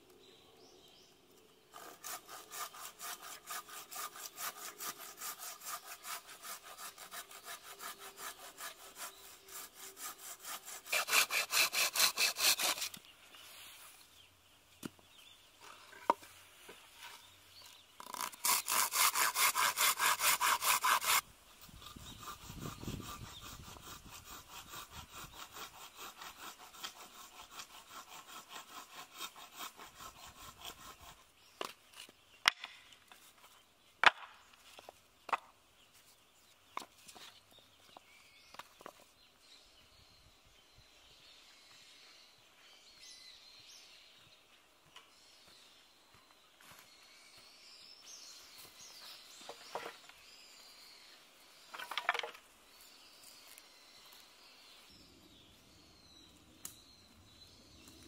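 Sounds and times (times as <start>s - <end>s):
hand saw cutting wood: 1.7s - 13.0s, 18.0s - 21.2s, 21.8s - 32.1s.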